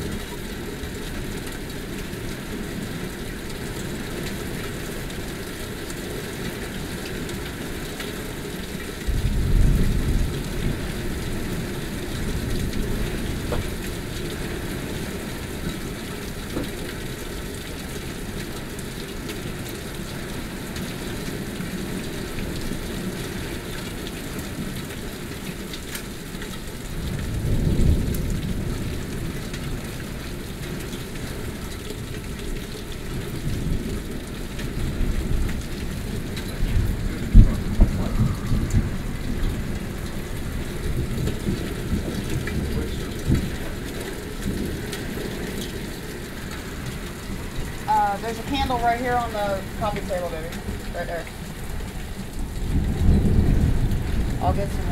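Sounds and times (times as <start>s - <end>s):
heavy rain: 0.0s - 54.9s
thunder rumbling: 8.9s - 17.3s, 26.8s - 30.6s, 31.3s - 54.9s.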